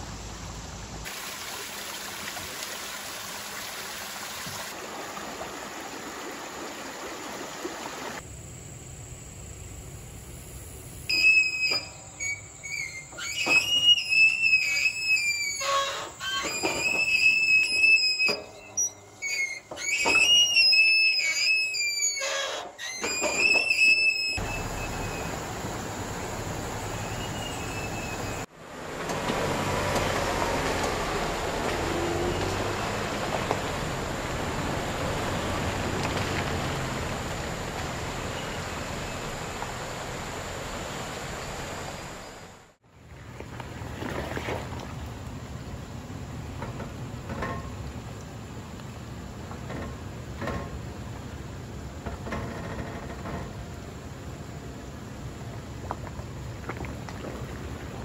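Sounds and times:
creek rushing: 0.1 - 8.2, 24.4 - 45.6
pump jack squealing: 11.1 - 25.4, 26.9 - 28.5
vehicle engines crawling: 24.4 - 42.6.

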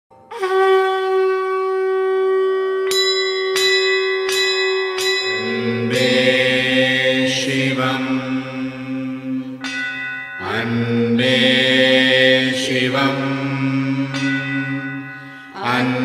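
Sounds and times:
conch shell blown: 0.2 - 16.0
temple bell strikes: 2.9 - 16.0
deep droning chant: 5.1 - 16.0.

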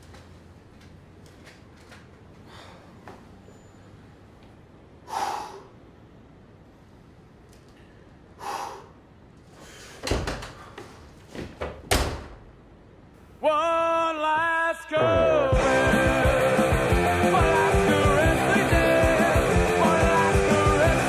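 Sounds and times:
man breathing out heavily: 5.0 - 5.9, 8.3 - 10.0
door shutting with thud: 10.0 - 10.6, 11.4 - 12.4.

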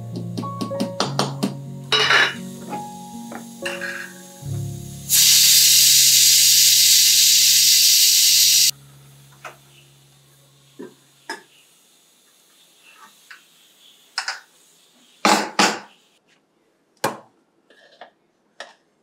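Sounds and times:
background music chord: 0.0 - 5.3, 8.7 - 11.3
pressure cooker steam hiss: 1.9 - 8.8, 10.7 - 16.2.

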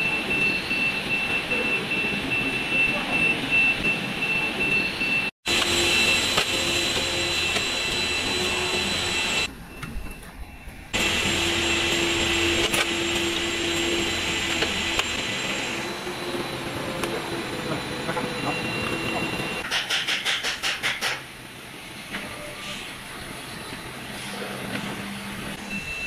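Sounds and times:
assembly line machinery whirring: 0.0 - 9.6, 10.9 - 19.7.

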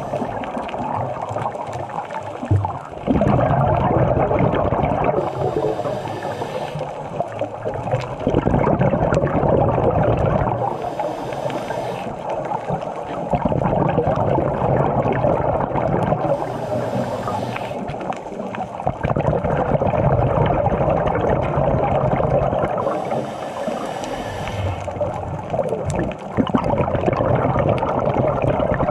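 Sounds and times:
underwater bubbling and gurgling: 0.0 - 28.9
diving regulator hiss: 5.2 - 7.2, 10.6 - 12.3, 16.2 - 18.1, 22.8 - 25.0.

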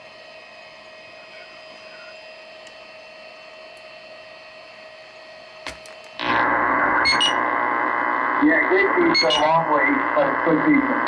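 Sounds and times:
muffled radio static: 1.0 - 2.3, 6.2 - 11.0
low hum tone: 6.2 - 11.0.

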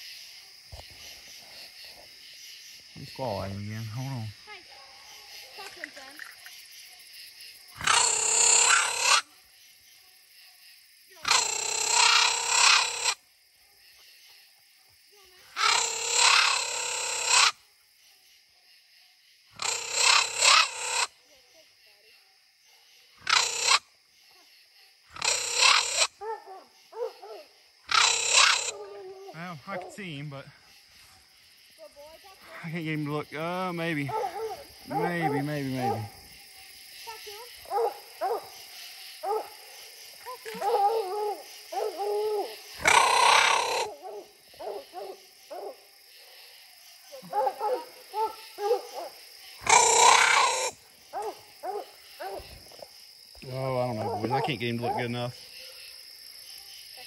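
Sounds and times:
dog barking: 26.2 - 30.0, 34.1 - 36.2, 37.1 - 38.6, 39.2 - 39.6, 40.2 - 42.2, 43.7 - 45.8, 47.2 - 49.2, 51.1 - 52.5, 53.9 - 55.9
rough dog bark bursts: 37.7 - 38.6.

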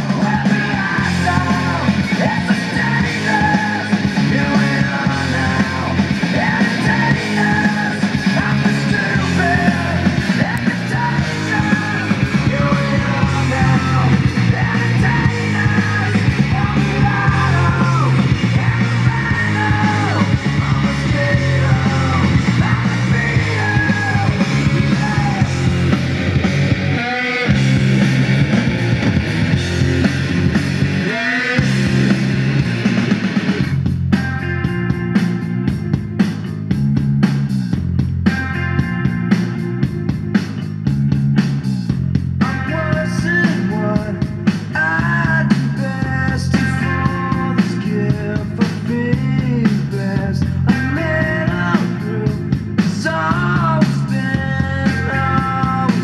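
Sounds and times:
rock song over loudspeakers: 0.0 - 56.0.

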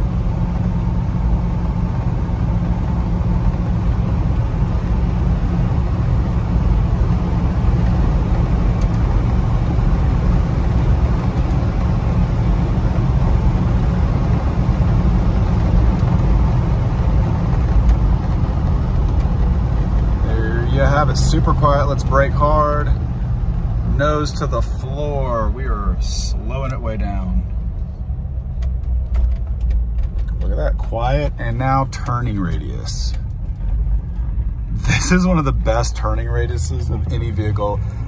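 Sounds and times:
car engine low drone: 0.0 - 38.0
road and wind noise: 0.0 - 38.0.

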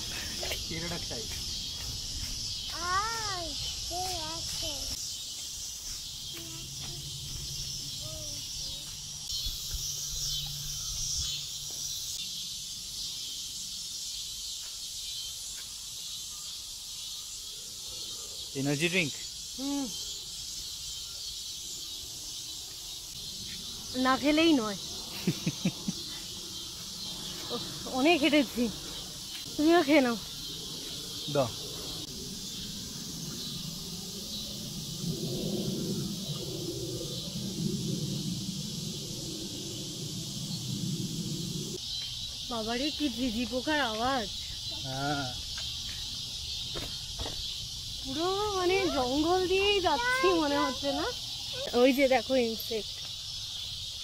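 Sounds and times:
crickets chirping: 0.0 - 54.0
low rumble: 31.8 - 41.8.

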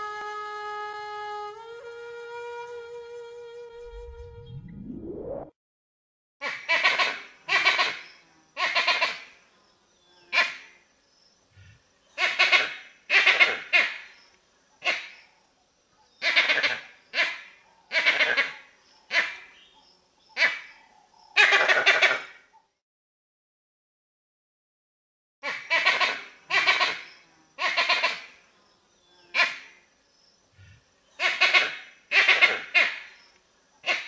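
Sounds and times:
monkey calls: 6.4 - 8.0, 12.2 - 14.0, 16.2 - 19.5, 21.3 - 22.4, 25.4 - 28.3, 31.2 - 33.1.

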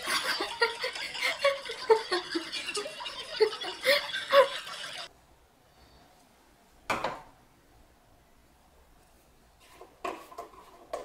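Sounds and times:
woman giggling: 0.0 - 5.1.

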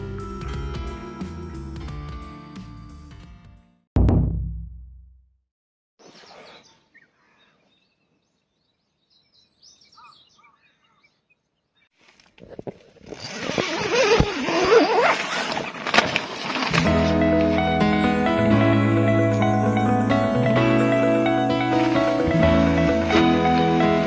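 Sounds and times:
deep low boom: 4.0 - 5.3
faint bird chirps: 6.0 - 11.9.

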